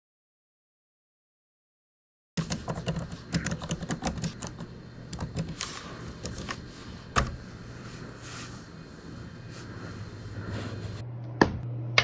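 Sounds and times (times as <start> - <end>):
keyboard typing clicks: 2.4 - 6.5.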